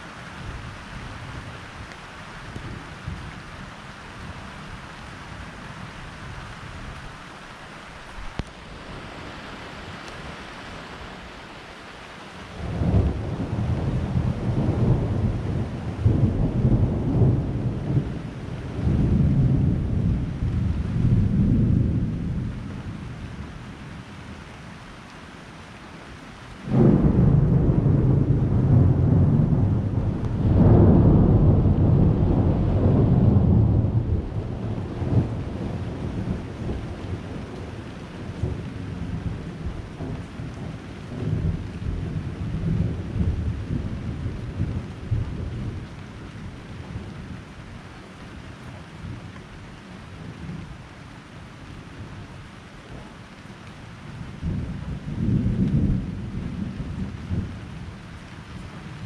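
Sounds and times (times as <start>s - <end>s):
rain hissing: 0.0s - 59.0s
wind: 0.0s - 59.0s
thunder rumbling: 12.6s - 23.6s, 26.6s - 47.4s, 54.4s - 59.0s.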